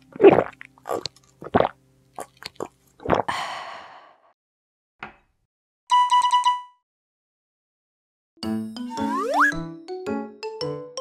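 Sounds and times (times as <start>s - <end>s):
loud gulps: 0.2s - 3.5s
breathy sound: 3.3s - 4.4s.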